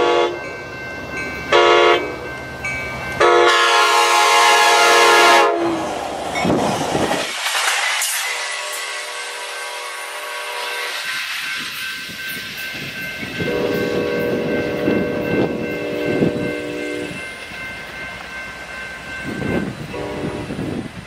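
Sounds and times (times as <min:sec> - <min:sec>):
train air horn: 0:00.0 - 0:00.4, 0:01.5 - 0:02.2, 0:03.2 - 0:05.9, 0:08.4 - 0:11.1, 0:13.4 - 0:17.2, 0:19.9 - 0:20.8
railroad crossing bell ringing: 0:00.0 - 0:05.6, 0:08.2 - 0:21.0
low rumble of train: 0:00.0 - 0:21.0.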